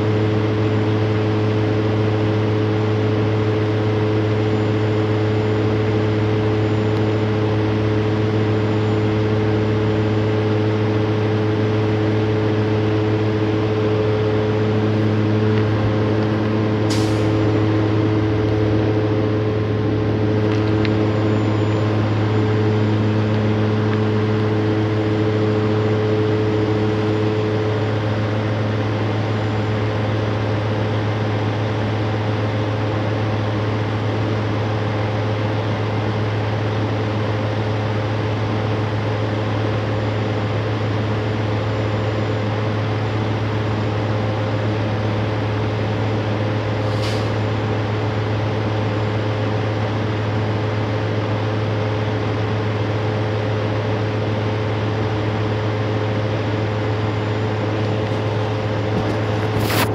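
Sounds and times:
higher hum tones: 0:00.0 - 0:30.9
vehicle engine idling: 0:00.0 - 0:59.9.

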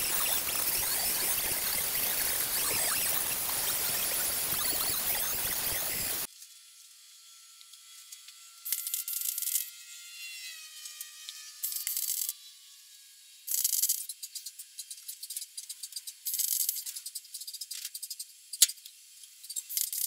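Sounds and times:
faint falling whine: 0:00.0 - 0:06.3
welder crackling: 0:00.0 - 0:06.3
angle grinder: 0:00.0 - 0:13.9.

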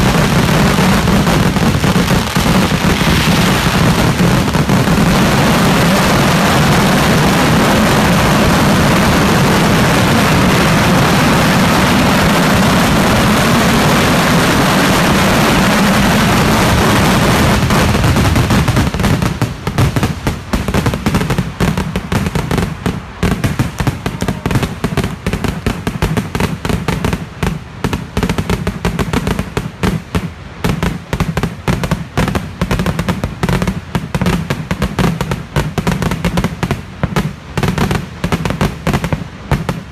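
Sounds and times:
firecrackers bursting: 0:00.0 - 0:39.9
firework bangs and crackles: 0:00.0 - 0:39.9.

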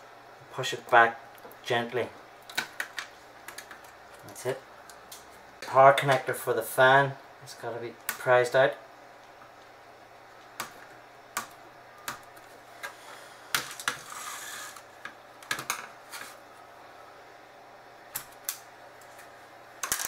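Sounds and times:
scraping rustle: 0:14.0 - 0:14.9.

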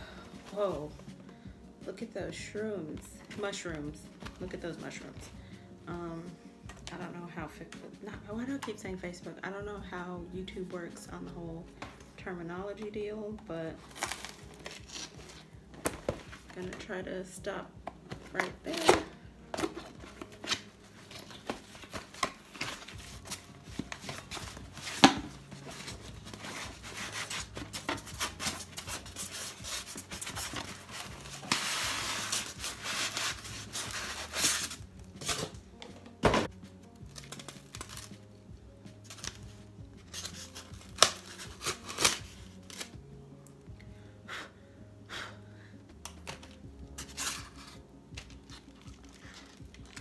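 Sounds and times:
faint music: 0:00.0 - 0:50.0
cardboard tearing: 0:13.8 - 0:16.5, 0:18.4 - 0:35.6, 0:37.2 - 0:38.1, 0:40.1 - 0:42.9
cardboard flaps crinkling: 0:13.8 - 0:16.8, 0:17.9 - 0:36.2.

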